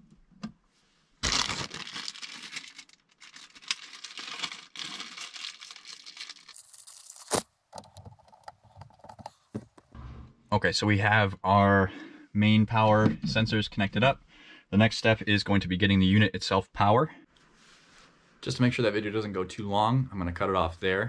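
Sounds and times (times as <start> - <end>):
rustling and crinkling handling: 1.2 - 9.9.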